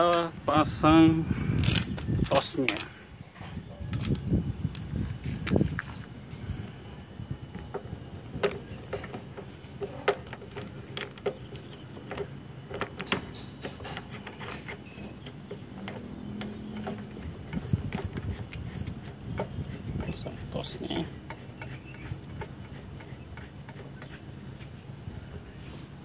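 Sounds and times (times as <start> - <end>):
plastic and metal clicks and knocks: 8.4 - 18.1.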